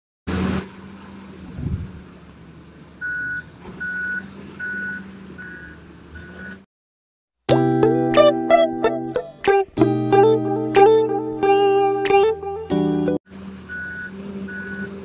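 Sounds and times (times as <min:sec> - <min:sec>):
diesel engine hum: 0:00.3 - 0:06.7, 0:09.9 - 0:15.0
reversing alarm beeping: 0:03.0 - 0:06.7, 0:13.7 - 0:15.0.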